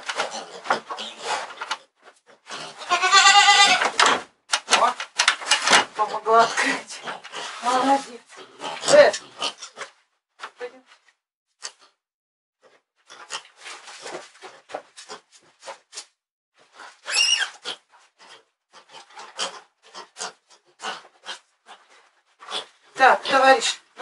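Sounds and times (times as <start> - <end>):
high-pitched animal squeal: 2.8 - 3.8, 17.0 - 17.8
feed and pails rustling and knocking: 3.7 - 7.9.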